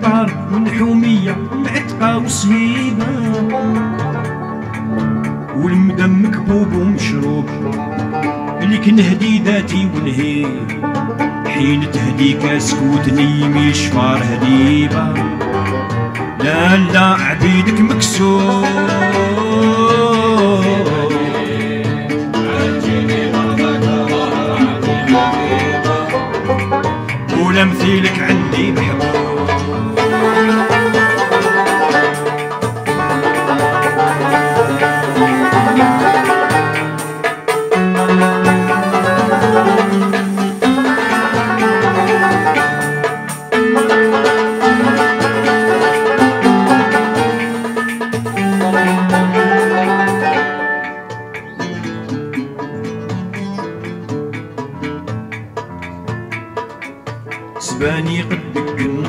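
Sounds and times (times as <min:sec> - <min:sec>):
man singing: 0:00.0 - 0:04.0, 0:05.5 - 0:15.6, 0:16.4 - 0:26.6, 0:27.3 - 0:32.1, 0:57.6 - 0:59.0
bass line: 0:00.0 - 0:52.1
plucked-string ensemble with banjo: 0:00.0 - 0:59.0.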